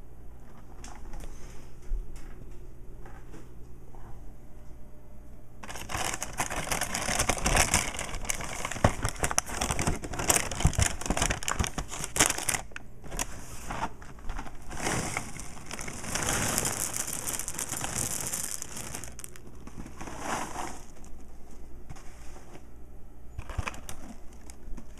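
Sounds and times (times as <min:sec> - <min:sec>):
plastic bag crinkling: 0:05.6 - 0:21.4, 0:23.4 - 0:24.9
cereal rattling into glass bowl: 0:14.7 - 0:21.1.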